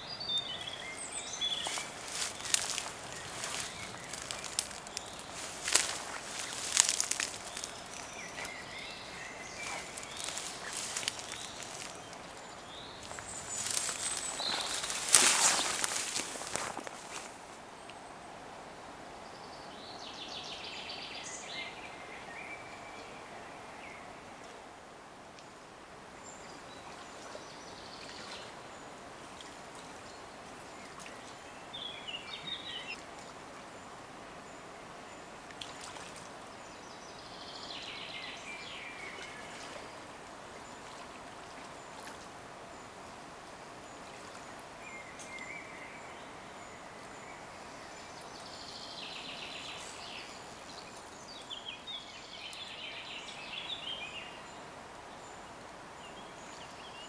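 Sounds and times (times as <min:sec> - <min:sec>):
birds singing: 0:00.0 - 0:17.3
flowing river: 0:00.0 - 0:57.0.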